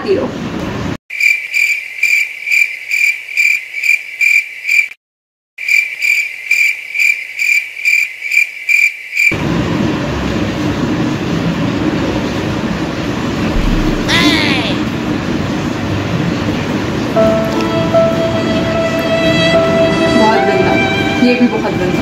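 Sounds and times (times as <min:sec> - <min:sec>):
cricket chirping: 0:01.2 - 0:04.9, 0:05.6 - 0:09.3
steady rushing noise: 0:13.4 - 0:15.1.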